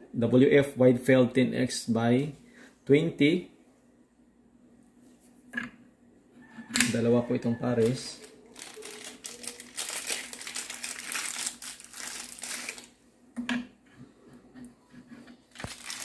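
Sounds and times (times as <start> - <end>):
plastic bag crinkling: 7.8 - 13.0, 15.5 - 16.0.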